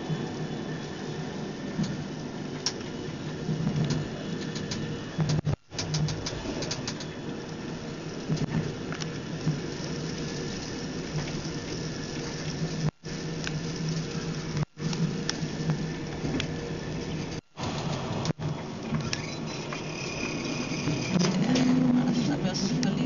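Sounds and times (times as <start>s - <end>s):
train rumbling inside carriage: 0.0s - 23.0s
scattered clicks: 3.8s - 7.1s.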